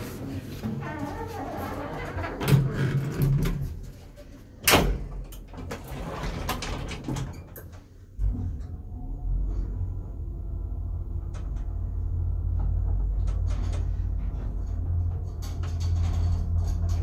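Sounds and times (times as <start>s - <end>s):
sliding elevator doors closing: 0.7s - 17.0s
elevator thump and low rumble: 8.1s - 17.0s.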